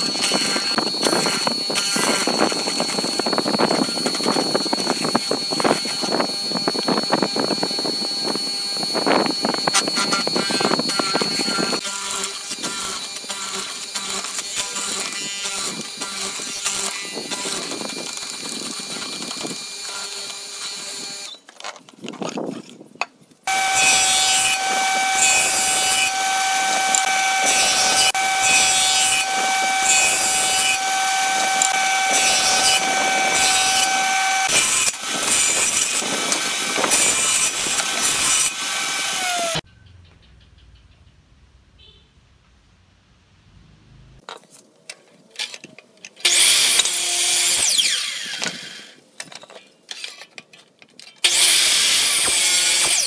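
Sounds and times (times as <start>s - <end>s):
jointer whining: 0.0s - 21.8s, 23.5s - 42.6s.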